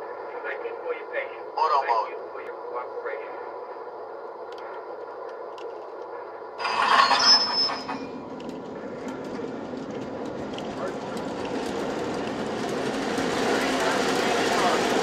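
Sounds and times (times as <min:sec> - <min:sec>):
model trains running on track: 0:00.0 - 0:04.0, 0:04.6 - 0:15.0
high-pitched squeal: 0:06.6 - 0:08.2.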